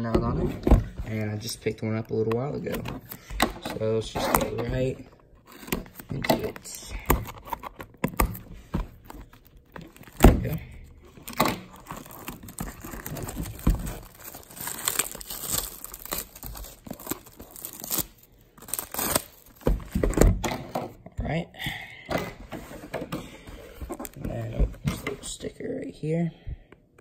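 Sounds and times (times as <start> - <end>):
shrink wrap tearing and crinkling: 9.2 - 20.0.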